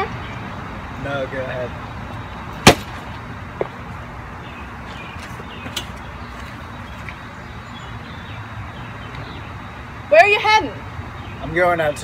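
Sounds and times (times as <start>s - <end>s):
outdoor background noise: 0.0s - 12.0s
sharp loud knock: 2.7s - 3.0s.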